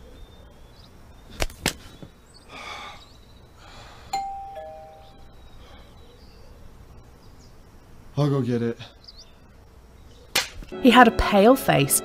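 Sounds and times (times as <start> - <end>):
sharp smacks: 1.3 - 1.9, 10.3 - 10.7
two-tone doorbell chime: 4.1 - 5.4.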